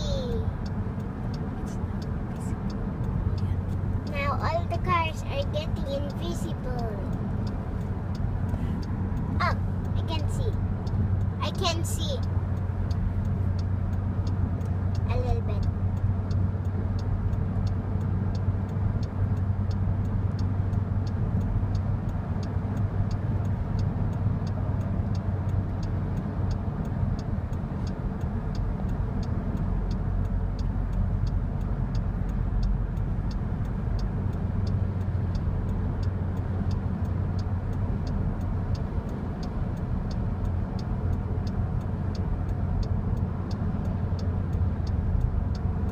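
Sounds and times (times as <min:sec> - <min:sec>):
car engine and tyres rumbling: 0:00.0 - 0:45.9
indicator ticking: 0:00.0 - 0:45.9.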